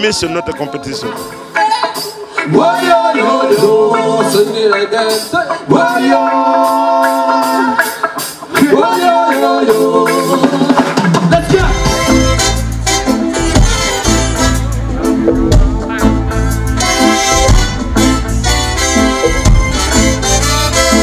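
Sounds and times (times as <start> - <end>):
drum beat with cymbal hits: 0.0 - 21.0
deep bass line: 11.4 - 21.0
sliding melody phrases: 11.4 - 21.0.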